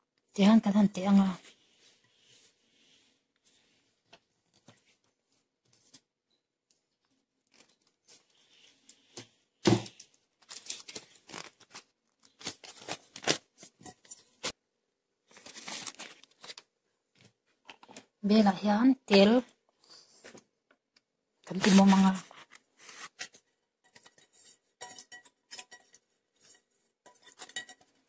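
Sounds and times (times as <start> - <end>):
paper rustling: 7.1 - 9.2, 10.0 - 14.6, 15.3 - 18.0, 21.5 - 24.6.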